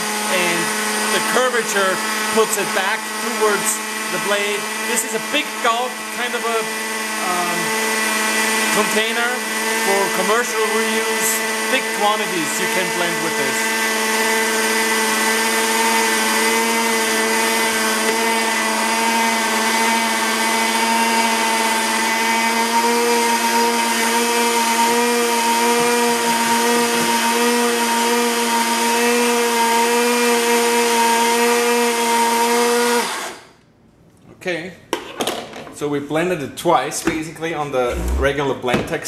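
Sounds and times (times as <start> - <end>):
blender grinding grain: 0.0 - 33.6, 37.9 - 38.6.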